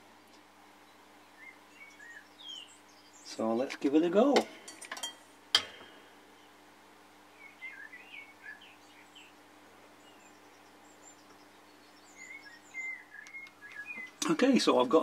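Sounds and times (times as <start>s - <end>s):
low steady hum: 0.0s - 15.0s
faint bird chirps: 0.8s - 3.5s, 7.3s - 14.4s.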